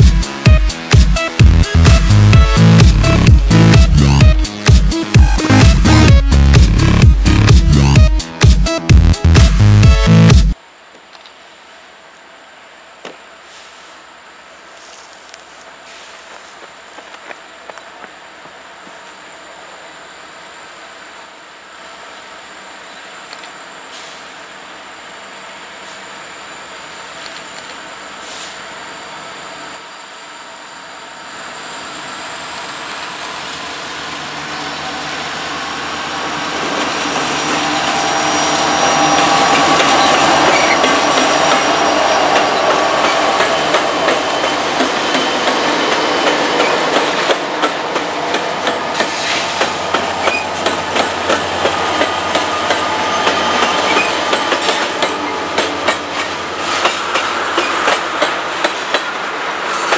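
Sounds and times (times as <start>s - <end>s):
diesel locomotives passing: 14.0s - 59.9s
clickety-clack of train wheels: 36.3s - 59.9s.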